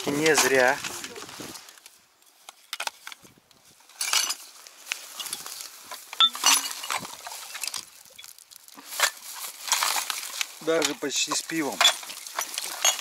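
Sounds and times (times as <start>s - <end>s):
plastic sack crinkling: 3.9s - 13.0s
bottles and cans clinking: 5.1s - 7.8s, 8.8s - 13.0s.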